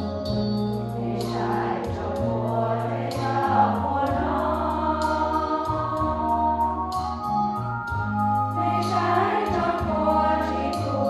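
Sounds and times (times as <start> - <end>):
deep bass notes: 0.0 - 11.0
women's choir singing a hymn: 0.9 - 7.0, 8.5 - 11.0.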